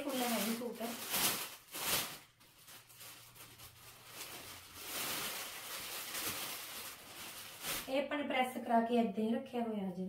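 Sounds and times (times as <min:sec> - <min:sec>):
plastic packaging crinkling: 0:00.0 - 0:08.0.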